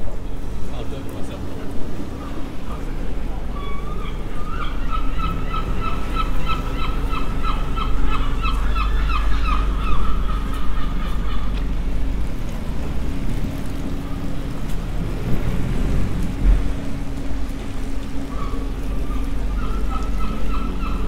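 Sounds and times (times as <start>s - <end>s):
steady low rumble: 5.0s - 21.0s.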